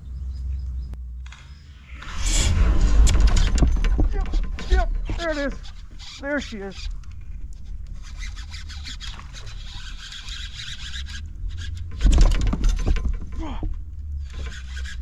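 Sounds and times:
loud sudden clatter: 2.0 - 6.2, 11.9 - 13.5
rubbing and scraping against boat: 2.0 - 15.0.

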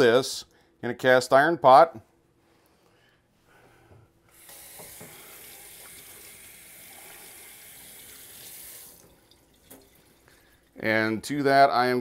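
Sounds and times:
faucet water running: 4.3 - 10.8.

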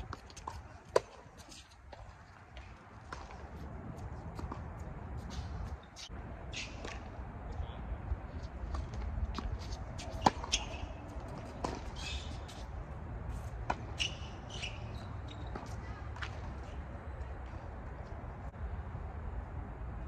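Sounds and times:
tennis ball bouncing on hard court: 0.0 - 2.0, 8.7 - 12.7, 13.5 - 16.5
racket hitting tennis ball: 0.0 - 7.2, 8.6 - 16.5.

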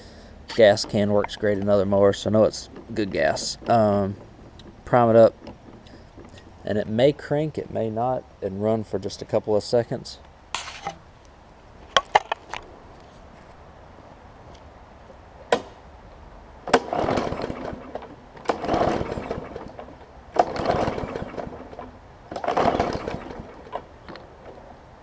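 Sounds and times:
mower engine turning over: 16.7 - 24.6.

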